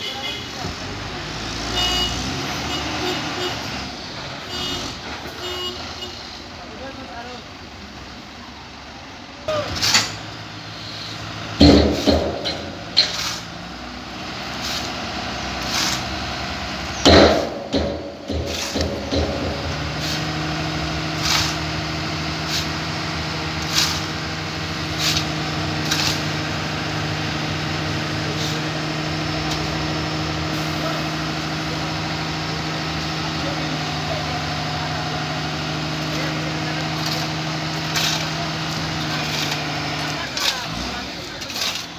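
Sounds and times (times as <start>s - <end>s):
truck engine droning: 0.1s - 41.9s
loud knock: 11.6s - 12.7s, 17.0s - 19.7s.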